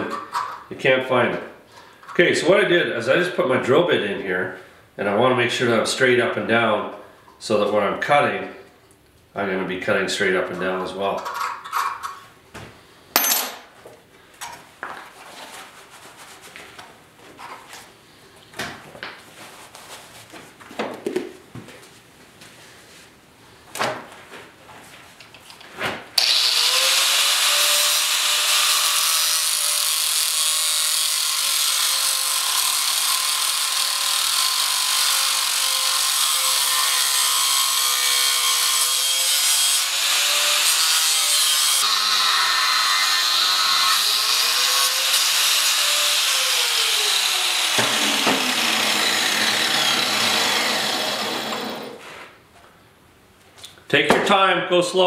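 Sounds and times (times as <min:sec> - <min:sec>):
angle grinder cutting steel: 0:26.2 - 0:52.0.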